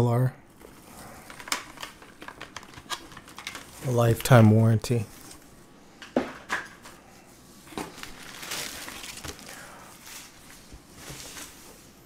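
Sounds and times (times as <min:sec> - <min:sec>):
packaging rustling and crinkling: 0:00.5 - 0:04.4, 0:07.5 - 0:12.0.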